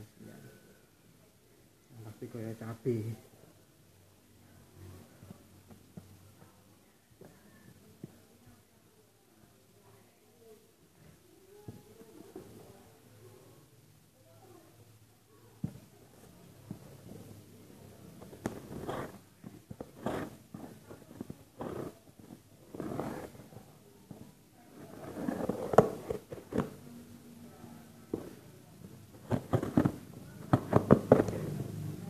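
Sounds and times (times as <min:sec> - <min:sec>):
rustling and scraping: 0:15.6 - 0:26.9, 0:28.1 - 0:31.7.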